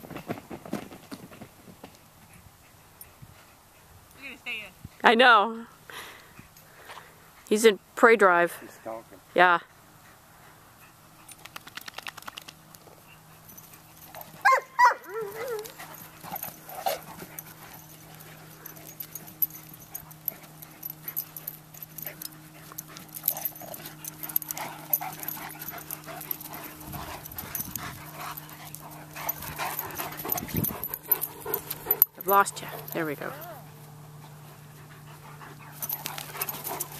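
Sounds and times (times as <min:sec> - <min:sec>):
dogs scuffling on grass: 0:12.0 - 0:36.9.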